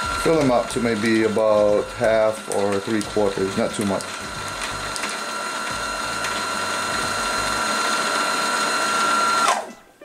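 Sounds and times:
sewing machine motor whining: 0.0 - 9.7.

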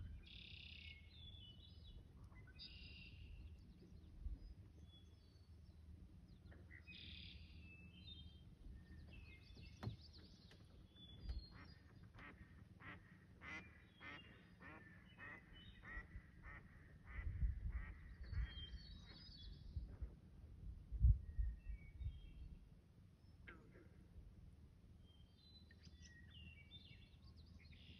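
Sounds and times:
small birds chirping: 0.1 - 16.6.

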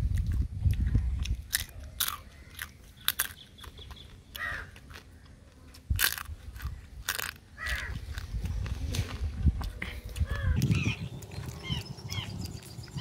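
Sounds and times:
crab shell cracking while chewing: 0.1 - 8.4.

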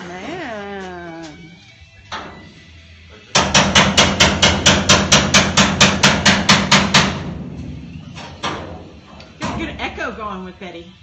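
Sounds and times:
hammer beating sheet metal: 3.3 - 7.6.

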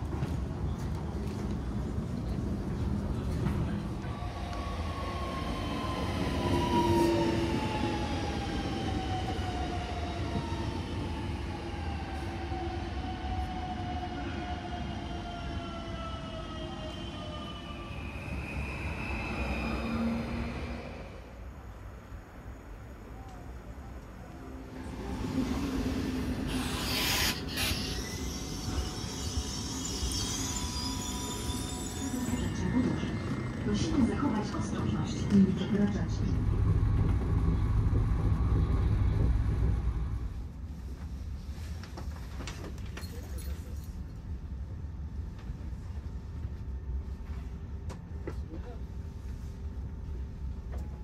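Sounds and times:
electric train rumble and hum: 0.0 - 51.0
air hissing: 26.4 - 28.9
low rolling rumble: 32.6 - 40.8.

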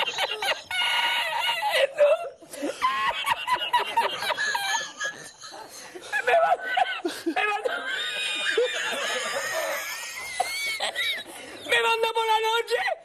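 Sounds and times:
man laughing hard: 2.7 - 11.3.

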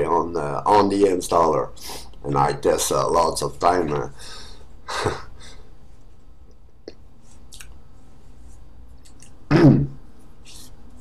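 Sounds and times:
steady low hum: 0.0 - 11.0
faint hiss: 1.6 - 3.1.

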